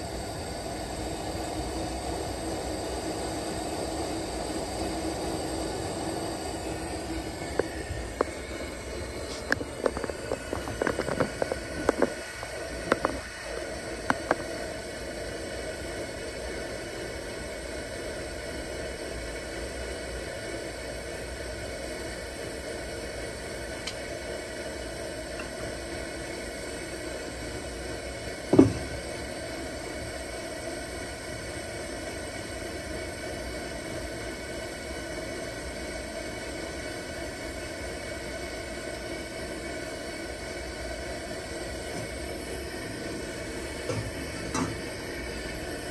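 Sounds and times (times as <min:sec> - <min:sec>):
camp stove burner hissing: 0:00.0 - 0:45.9
single knock: 0:28.5 - 0:29.0.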